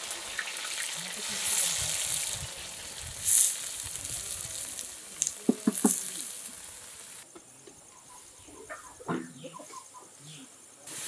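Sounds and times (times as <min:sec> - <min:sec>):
vegetables sizzling in hot oil: 0:00.0 - 0:07.2.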